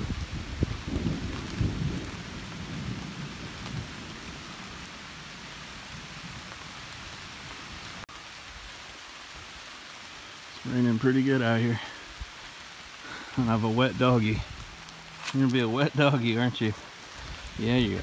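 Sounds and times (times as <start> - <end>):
low rumble of thunder: 0.0 - 7.6
rain falling on leaves: 0.0 - 18.0.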